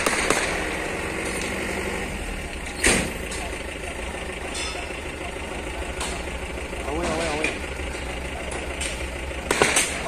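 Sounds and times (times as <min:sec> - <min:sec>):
loud gunshot: 0:00.0 - 0:00.8, 0:09.4 - 0:10.0
distant gunfire: 0:00.0 - 0:00.9, 0:09.4 - 0:10.0
heavy vehicle engines idling: 0:00.0 - 0:10.0.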